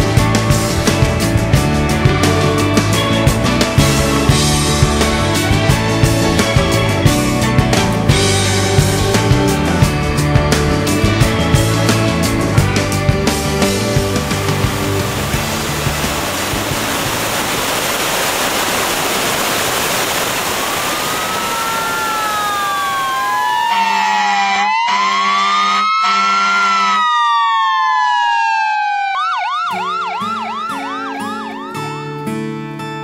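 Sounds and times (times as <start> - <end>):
loud rushing hiss: 13.4 - 23.4
emergency vehicle sirens: 19.8 - 32.2.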